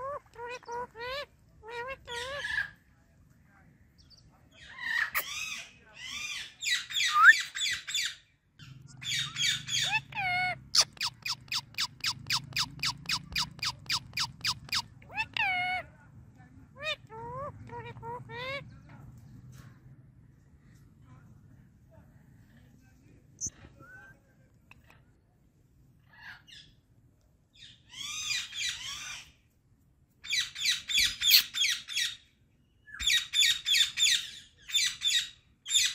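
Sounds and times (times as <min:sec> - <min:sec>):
parakeet squawking: 0:00.0 - 0:02.7, 0:09.0 - 0:15.8, 0:16.8 - 0:18.6
parakeet chattering calls: 0:06.2 - 0:15.8.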